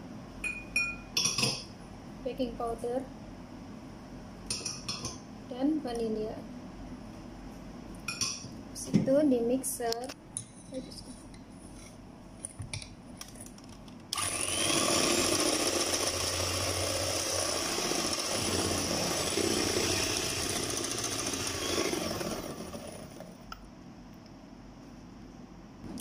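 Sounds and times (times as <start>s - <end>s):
electric hand mixer whirring: 14.2s - 23.4s.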